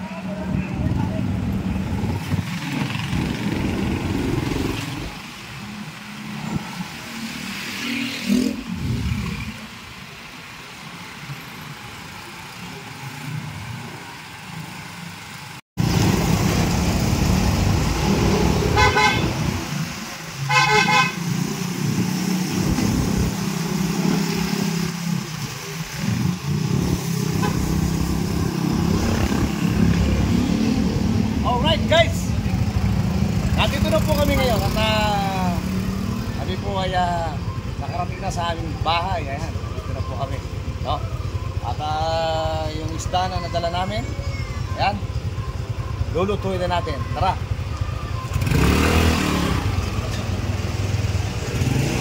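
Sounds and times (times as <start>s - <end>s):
vehicle engine and road noise: 0.0s - 52.0s
car horn tooting: 18.7s - 19.5s, 20.5s - 21.2s.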